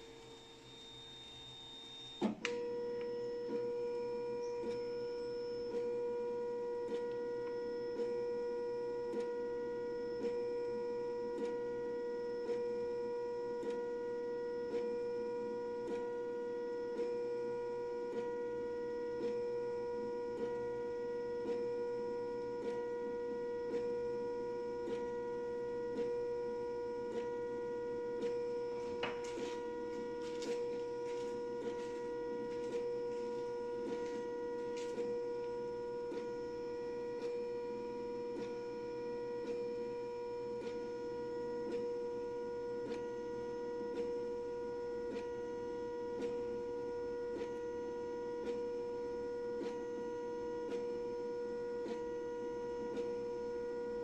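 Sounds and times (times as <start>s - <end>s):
printer high-pitched hum: 0.0s - 54.0s.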